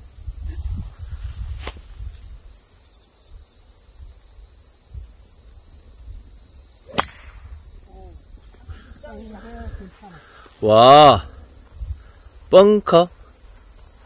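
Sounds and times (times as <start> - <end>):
wind rumble on microphone: 0.0 - 2.6, 4.8 - 9.9, 11.1 - 12.4
insect chirring: 0.0 - 14.0
golf club striking ball: 6.9 - 7.5.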